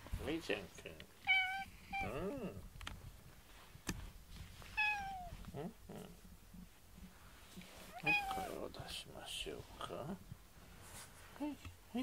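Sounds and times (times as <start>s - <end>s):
cat meowing: 1.2s - 2.4s, 4.8s - 5.4s, 7.9s - 8.6s.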